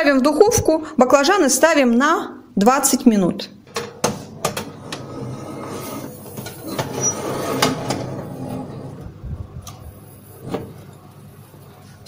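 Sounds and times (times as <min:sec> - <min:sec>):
baking tray scraping on oven rack: 0:04.3 - 0:09.1.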